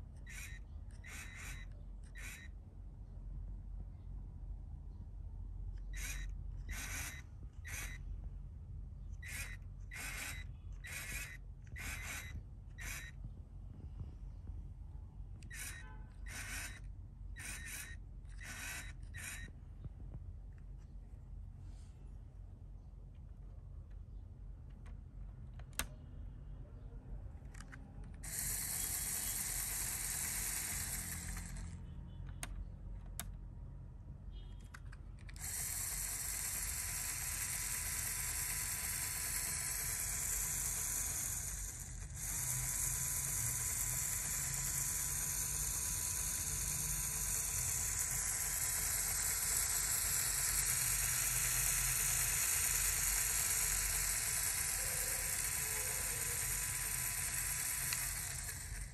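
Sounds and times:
toy motor whirring with gear clatter: 0.0s - 2.6s, 5.6s - 8.2s, 9.0s - 14.4s, 15.3s - 19.9s, 27.4s - 33.3s, 34.5s - 58.9s.

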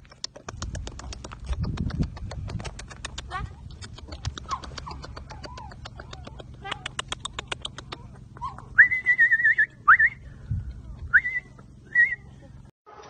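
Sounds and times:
person whistling: 8.8s - 10.2s, 11.1s - 12.2s.

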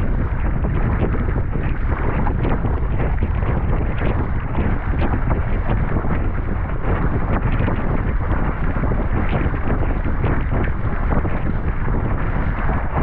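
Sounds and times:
water splashing against hull: 0.0s - 13.0s
wind buffeting microphone: 0.0s - 13.0s.

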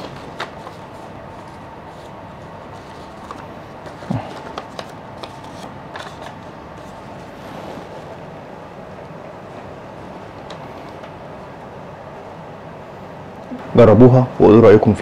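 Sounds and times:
paper crinkling: 0.0s - 8.2s.

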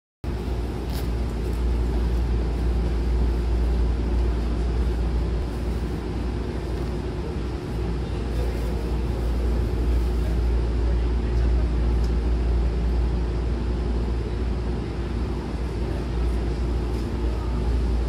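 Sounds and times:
low rumble and hum inside train: 0.2s - 18.0s.

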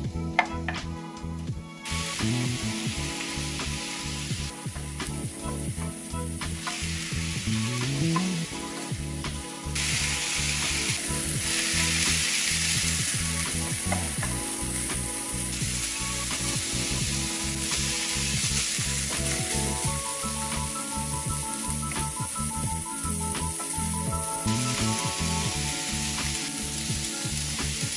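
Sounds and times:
meat and vegetables sizzling in pan: 1.7s - 27.9s.

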